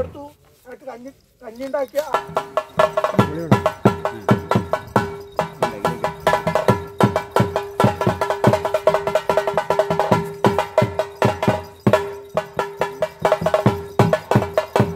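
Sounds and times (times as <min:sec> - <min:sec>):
barrel drum beating: 0:01.8 - 0:14.9.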